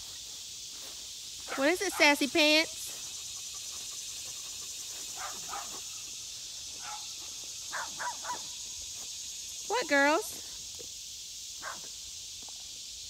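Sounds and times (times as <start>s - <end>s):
distant dogs barking: 1.5s - 8.7s, 11.6s - 11.9s.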